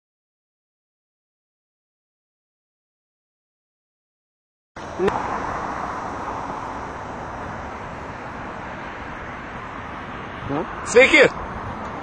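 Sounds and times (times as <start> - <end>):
outdoor background noise: 4.8 - 12.0.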